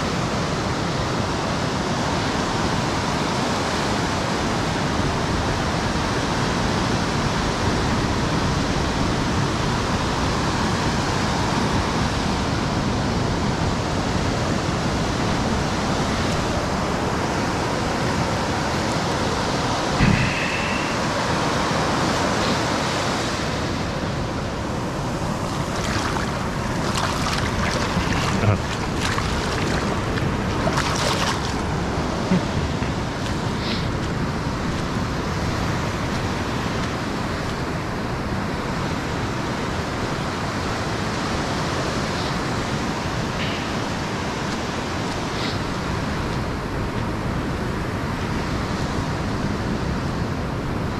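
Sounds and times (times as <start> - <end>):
steady rushing noise: 13.4 - 48.3
short high tone: 20.0 - 21.2.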